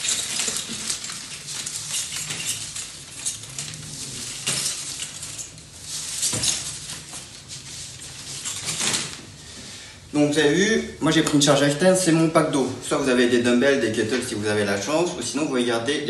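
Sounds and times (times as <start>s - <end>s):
shrink-wrapped bottles crinkling and knocking: 0.0s - 9.4s.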